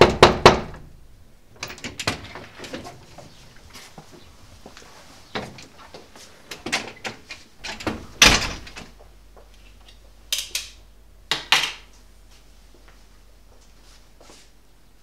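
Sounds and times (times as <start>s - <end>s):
sharp knocks: 0.0s - 0.9s
rustling: 2.2s - 10.2s
door shutting with thud: 6.6s - 8.9s.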